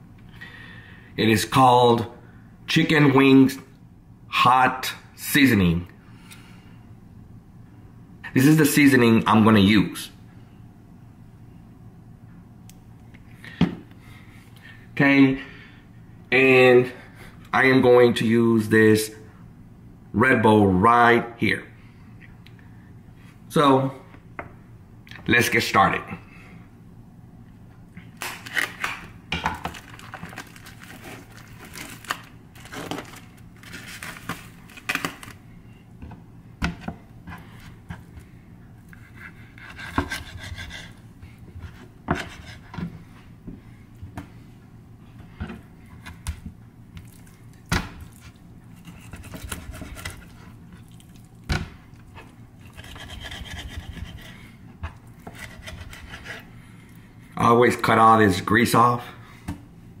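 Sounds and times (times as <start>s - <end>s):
knife slitting plastic wrap: 28.2s - 29.1s, 29.7s - 35.3s.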